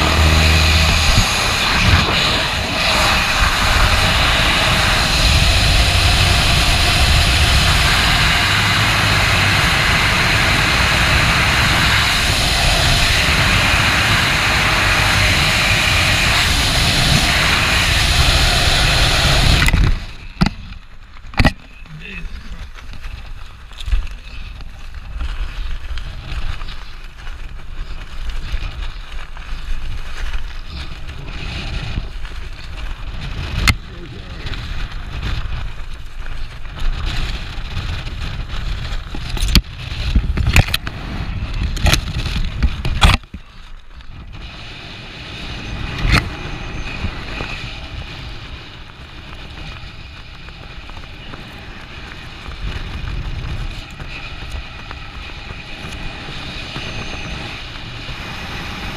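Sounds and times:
air rushing over microphone: 0.0s - 21.0s, 21.7s - 58.9s
canopy fabric flapping: 19.6s - 58.9s.

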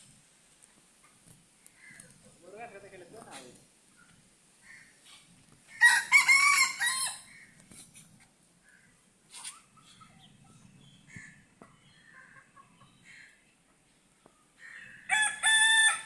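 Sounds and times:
rooster crowing: 5.8s - 7.3s, 15.0s - 16.0s
hens clucking: 9.2s - 15.0s.

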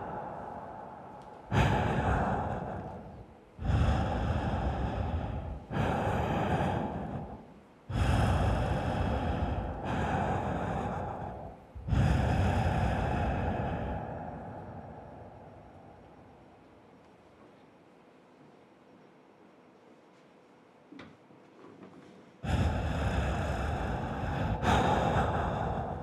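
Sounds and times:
heavy amplified breathing: 0.0s - 16.5s, 22.0s - 26.0s.

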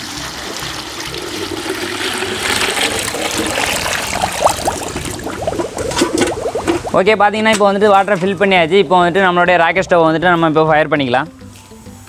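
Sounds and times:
water pouring into plastic bucket: 0.0s - 7.0s
water gurgling: 0.0s - 7.3s.

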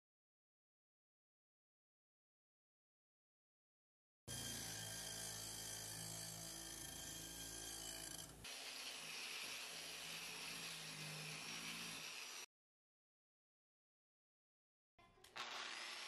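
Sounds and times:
bench grinder on iron: 4.3s - 12.5s, 15.3s - 16.0s.

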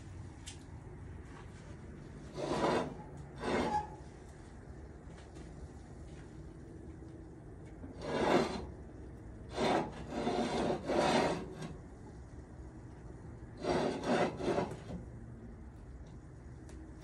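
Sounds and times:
metal tool scraping inside oven: 2.3s - 4.2s, 7.8s - 8.8s, 9.5s - 11.8s, 13.6s - 15.0s.

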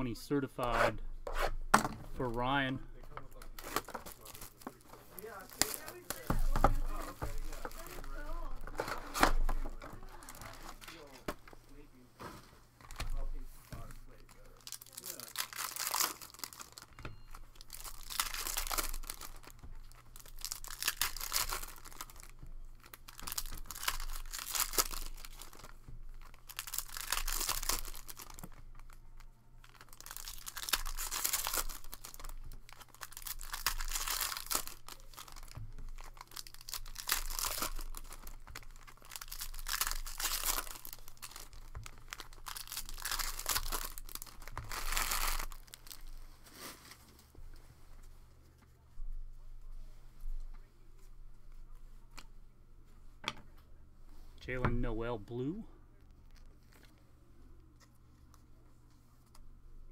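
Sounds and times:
foil wrappers tearing and crumpling: 3.6s - 11.2s, 14.1s - 47.2s.

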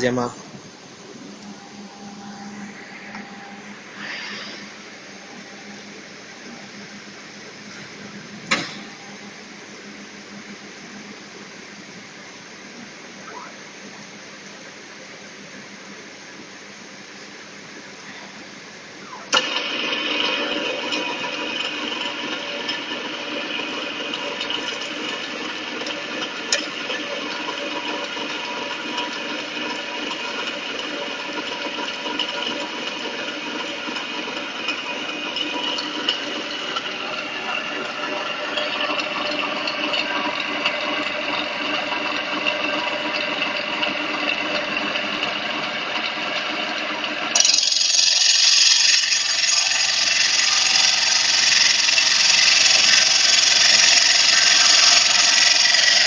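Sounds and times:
router spindle motor hum and whine: 0.0s - 14.0s, 18.0s - 56.0s
tool grinding into stone: 47.3s - 56.0s.

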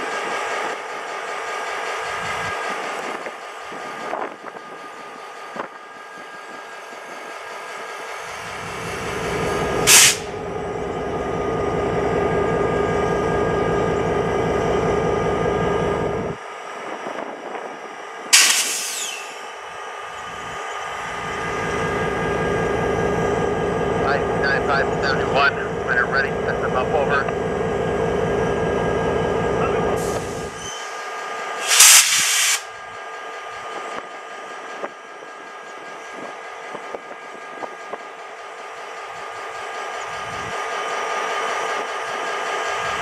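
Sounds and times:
locomotive engine idling: 0.3s - 16.4s, 18.9s - 31.6s, 32.6s - 43.0s
air brake hiss: 9.8s - 10.4s, 18.4s - 19.5s, 30.0s - 31.0s, 31.6s - 32.7s
falling squeal: 18.7s - 20.8s, 30.3s - 31.1s.

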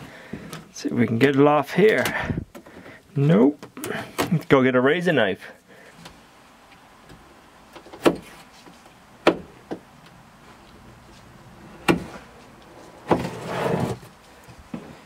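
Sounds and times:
knocks on wooden boards: 9.2s - 9.9s
scraping rustle: 10.4s - 15.0s.

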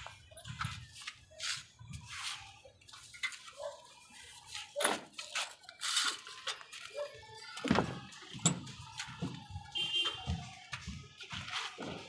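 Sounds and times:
knocks and clinks of handled tools: 2.9s - 3.8s.

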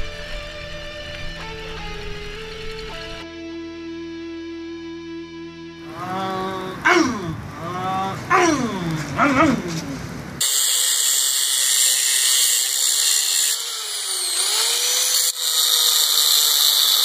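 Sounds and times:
angle grinder cutting metal: 10.4s - 17.0s.

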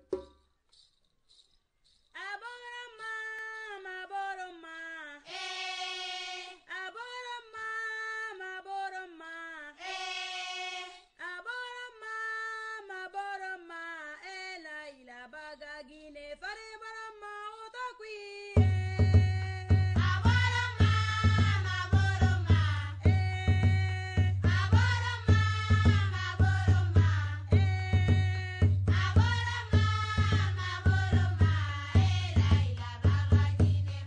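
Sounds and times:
drums and percussion: 0.0s - 2.2s, 18.6s - 34.0s
solo unaccompanied singing: 2.2s - 34.0s.

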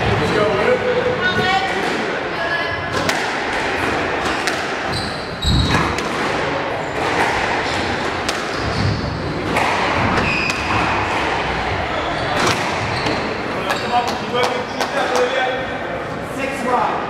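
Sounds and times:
racket striking squash ball: 2.9s - 11.6s, 12.3s - 15.3s
shoes squeaking on court floor: 4.2s - 6.2s, 6.8s - 14.5s
spectators murmuring: 6.2s - 17.0s.

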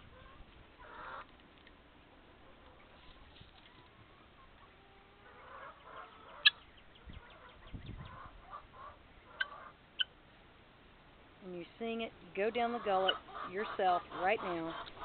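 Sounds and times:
chickens clucking softly: 0.0s - 1.4s, 2.0s - 10.1s, 12.6s - 15.0s
chickens pecking at grass: 0.1s - 6.6s, 11.6s - 15.0s.

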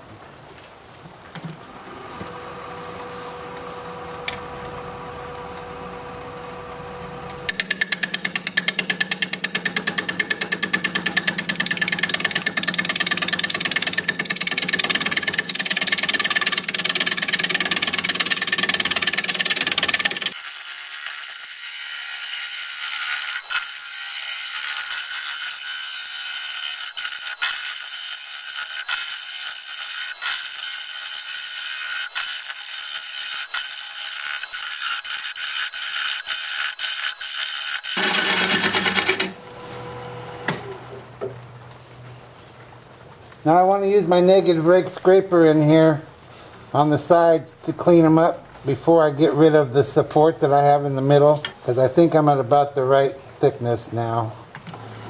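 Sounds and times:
bowl gouge cutting on wood lathe: 1.8s - 40.9s.

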